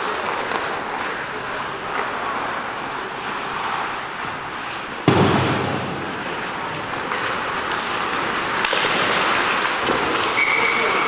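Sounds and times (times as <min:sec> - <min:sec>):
ice rink noise: 0:00.0 - 0:11.0
loud bang echoing: 0:05.0 - 0:06.2.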